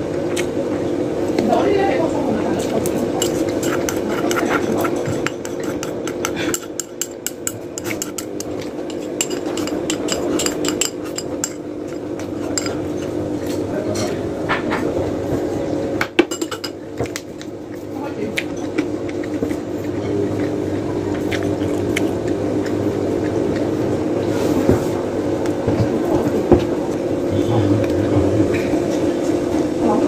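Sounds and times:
steady hum: 0.0 - 30.0
cutlery clicking on a plate: 3.2 - 12.8.

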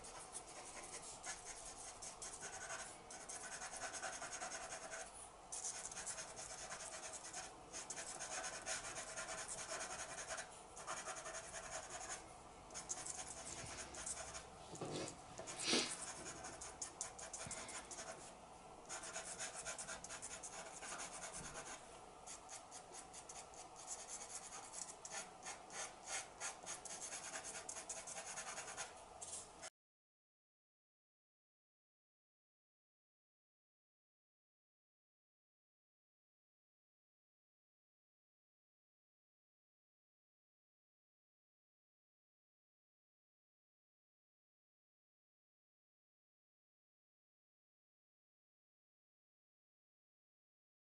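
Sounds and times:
pencil scratching on paper: 0.0 - 12.2, 12.8 - 18.2, 18.9 - 29.7.

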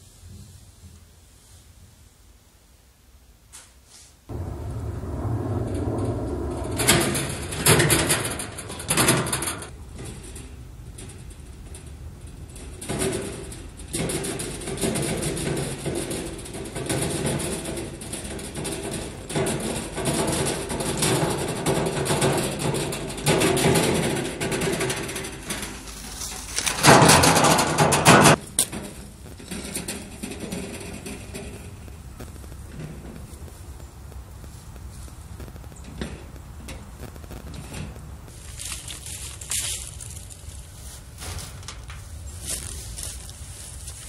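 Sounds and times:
wheelbarrow wheel rumbling: 4.3 - 44.0
footsteps crunching pine needles: 25.6 - 26.9, 38.3 - 44.0.

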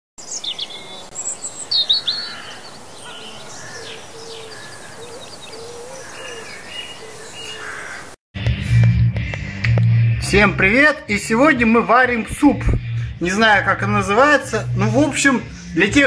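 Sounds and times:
birds chirping: 0.2 - 8.2
low wavering bird call: 1.9 - 8.0.

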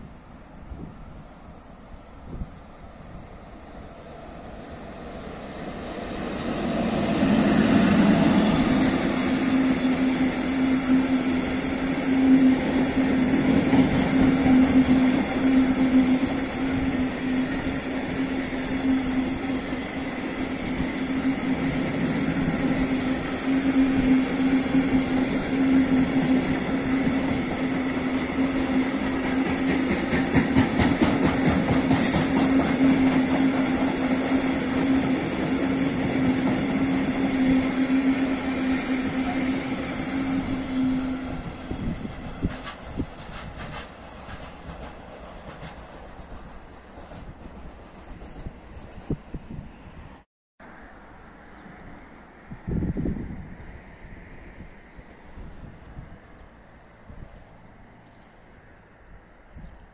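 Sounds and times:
electric locomotive passing: 0.0 - 59.9
train wagons rumbling and clattering: 4.5 - 49.7.

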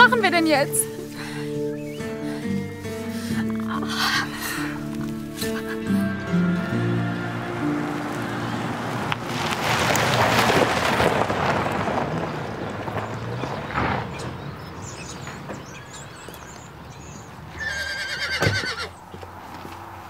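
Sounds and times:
tyres crunching on gravel: 0.0 - 20.0
car engine: 3.0 - 16.0
horse whinny: 17.5 - 19.0.

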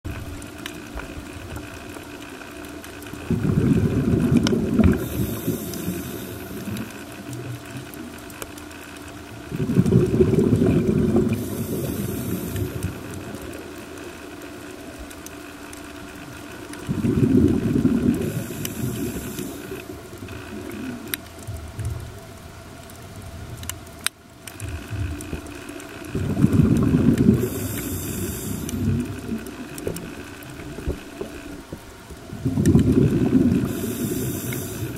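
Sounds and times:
rush of exhaled bubbles: 3.2 - 7.0, 9.5 - 13.4, 16.8 - 21.1, 26.1 - 31.5, 32.3 - 34.9
soft high regulator hiss: 4.7 - 9.5, 11.2 - 17.0, 17.8 - 21.2, 27.2 - 32.2, 33.3 - 34.9.

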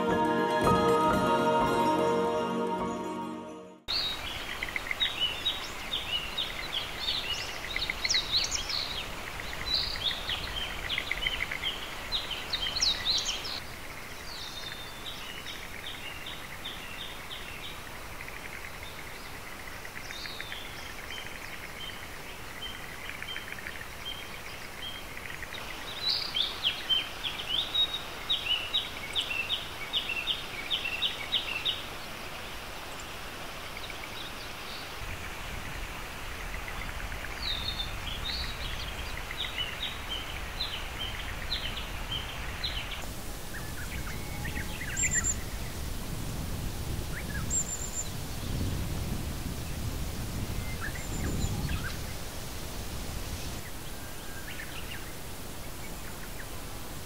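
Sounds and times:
steady outdoor hiss: 0.0 - 57.0
small bird singing: 14.2 - 32.2, 36.4 - 45.7, 50.6 - 52.1.

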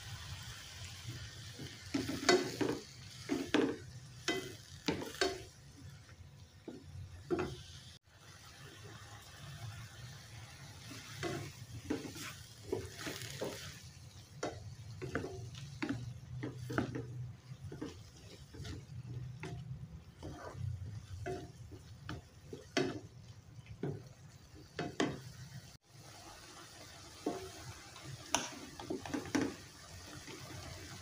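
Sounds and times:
food sizzling: 0.0 - 31.0
spatula scraping a wok: 0.7 - 6.1, 9.3 - 23.1.

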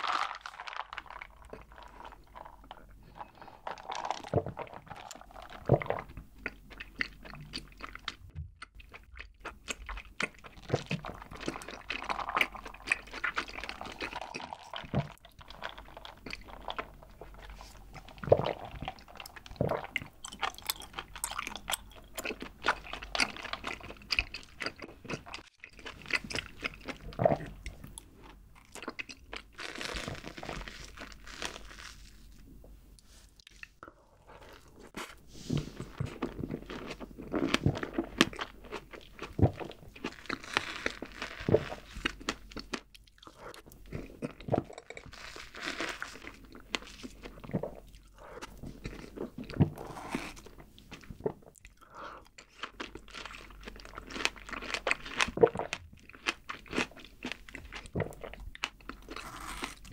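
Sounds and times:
sipping through a straw: 59.2 - 59.9.

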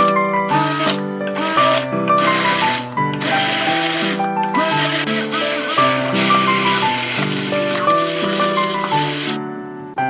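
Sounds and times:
gentle piano music: 0.0 - 10.0
immersion blender whirring: 0.5 - 9.4.

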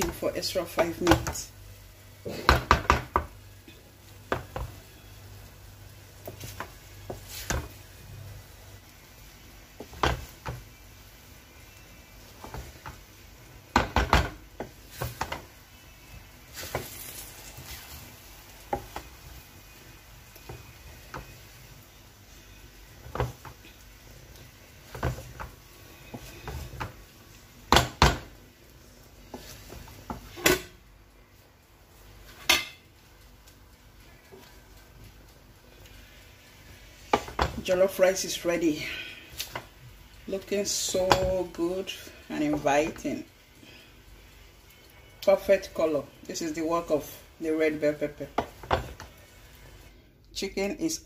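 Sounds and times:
wooden spatula scraping a metal pot: 24.8 - 27.0, 29.2 - 30.7.

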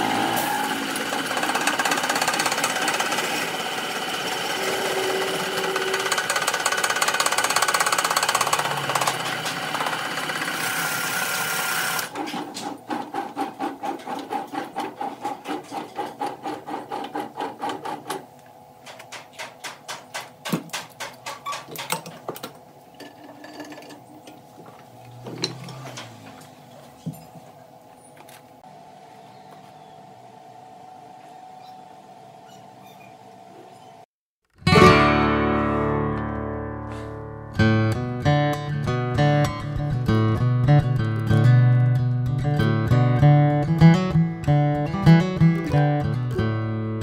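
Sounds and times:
machine cutting or sanding: 0.0 - 18.1.

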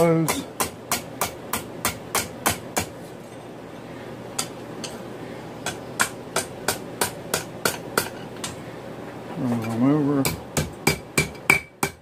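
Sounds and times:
hammer striking steel on anvil: 0.0 - 2.9, 5.6 - 8.6, 10.2 - 12.0.

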